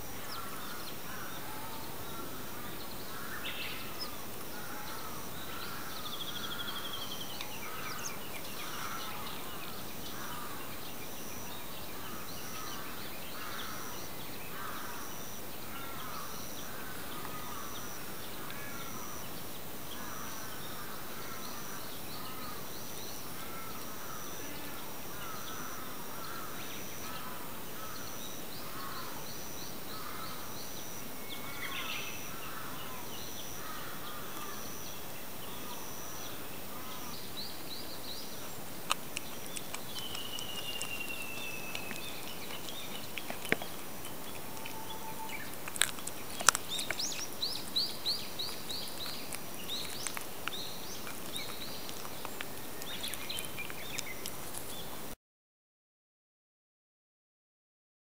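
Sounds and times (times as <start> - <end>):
birds calling: 0.0 - 55.1
cat chewing and crunching bone: 38.7 - 55.0.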